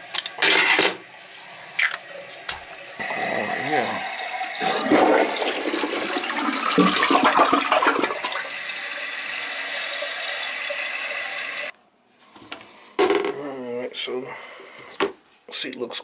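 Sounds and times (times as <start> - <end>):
toilet flushing water: 1.8 - 11.7
toilet tank refilling hiss: 2.1 - 11.7.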